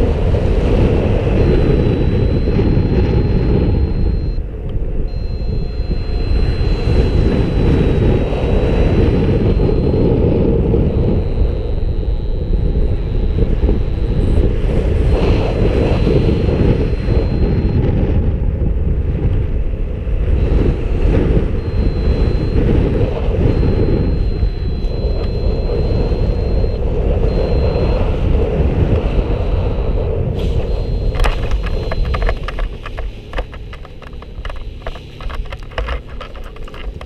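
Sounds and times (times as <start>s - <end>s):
wind buffeting microphone: 0.0s - 37.0s
thin high steady tone: 1.2s - 4.5s, 5.1s - 17.9s, 21.5s - 28.4s, 29.2s - 37.0s
clicks and rustling on grass: 31.2s - 37.0s.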